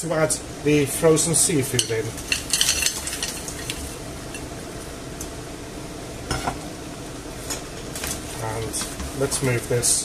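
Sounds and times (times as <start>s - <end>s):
stew sizzling and bubbling: 0.0s - 10.0s
frozen seafood clattering into pan: 2.2s - 3.8s.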